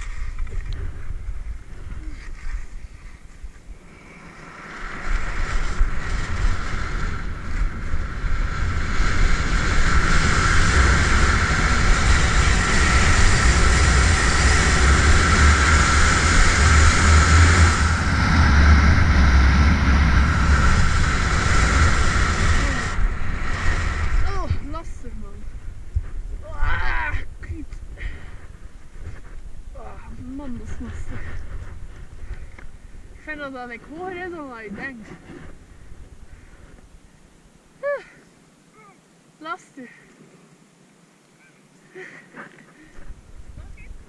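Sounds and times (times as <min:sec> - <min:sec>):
skis scraping through snow: 0:00.0 - 0:26.4
wind rushing over microphone: 0:00.0 - 0:37.2, 0:42.9 - 0:44.0.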